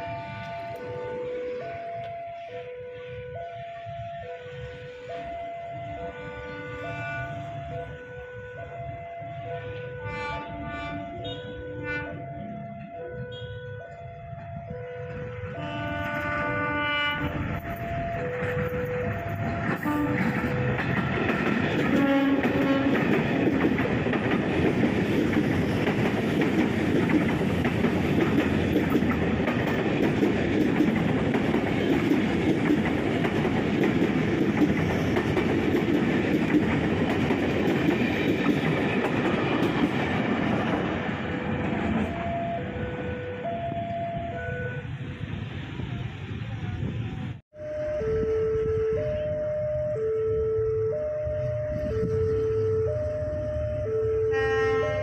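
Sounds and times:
train horn blasts: 0.0s - 23.4s, 47.6s - 53.1s, 54.0s - 55.0s
train passing with clattering wheels: 0.0s - 47.4s, 50.8s - 55.0s.

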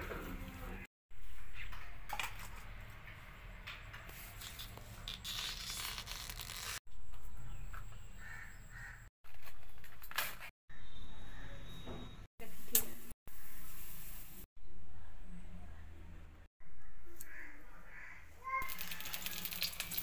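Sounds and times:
bracts being peeled rustling: 4.1s - 6.8s.

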